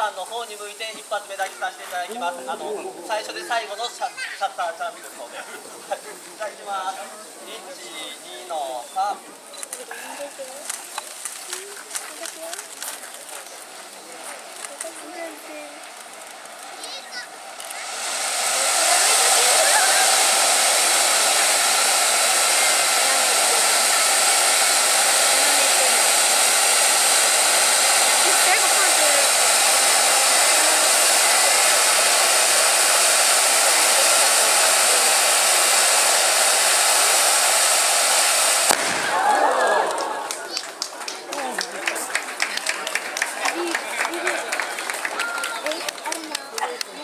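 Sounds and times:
firework spraying sparks hiss: 5.6s - 41.3s.

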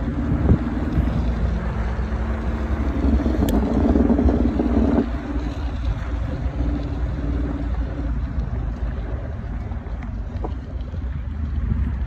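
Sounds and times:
vehicle engine driving: 0.0s - 12.0s.

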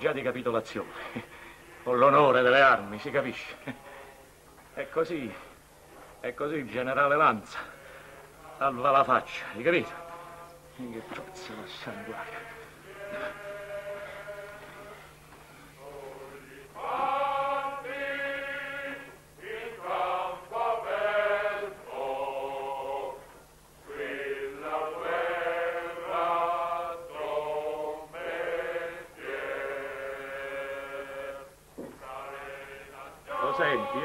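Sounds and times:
men singing together: 7.6s - 15.1s, 15.8s - 23.3s, 23.9s - 34.0s.

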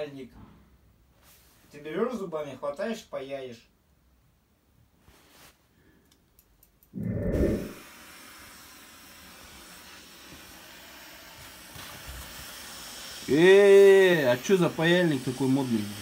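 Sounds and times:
gas torch hissing: 7.0s - 16.0s.

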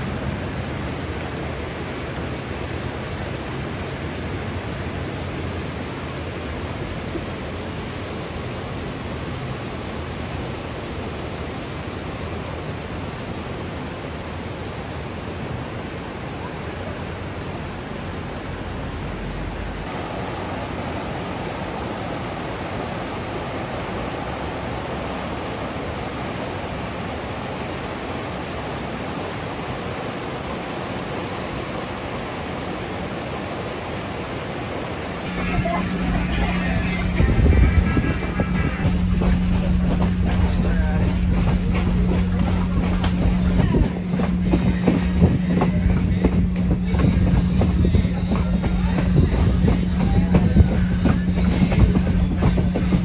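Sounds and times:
whitewater rushing over rocks: 0.0s - 53.0s
music: 35.3s - 53.0s.

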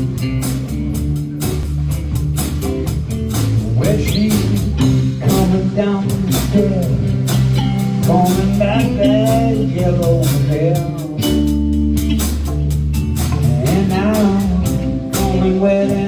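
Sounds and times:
bass line: 0.0s - 16.0s
drum kit cymbals: 0.0s - 16.0s
electric guitar: 0.0s - 16.0s
man singing into a microphone: 3.7s - 7.2s, 8.0s - 11.5s, 13.4s - 16.0s.

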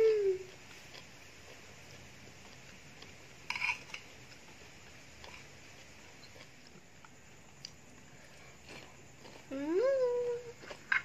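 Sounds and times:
metal spoon scraping a plate: 3.4s - 4.1s.

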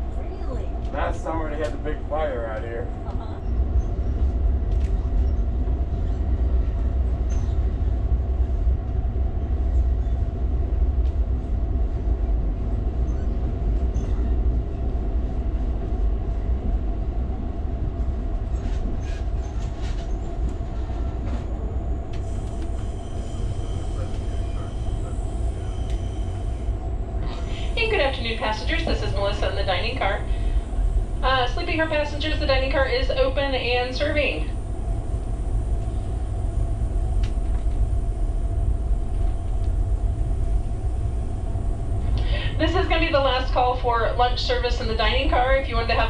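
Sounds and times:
train car rumble on rails: 0.0s - 46.0s
light clicks of rails: 37.2s - 37.8s.

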